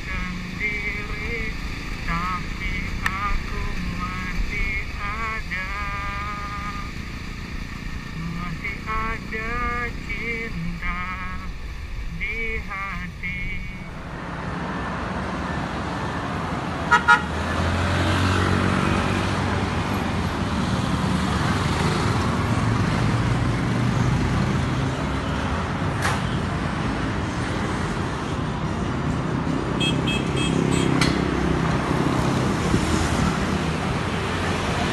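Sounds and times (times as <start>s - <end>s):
motorcycle engine running: 0.0s - 14.0s
street traffic: 0.0s - 34.9s
horn toots: 16.9s - 17.3s.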